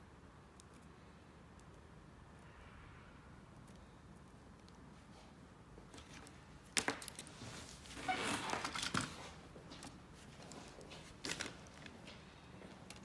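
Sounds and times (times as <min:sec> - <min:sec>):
wires rustling: 0:03.6 - 0:13.0.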